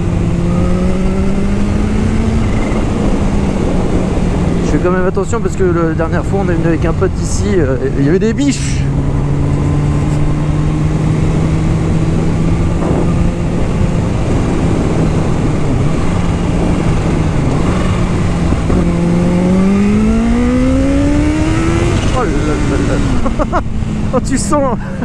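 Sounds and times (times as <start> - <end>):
wind rush on microphone: 0.0 - 25.0
motorcycle engine running: 5.8 - 24.8.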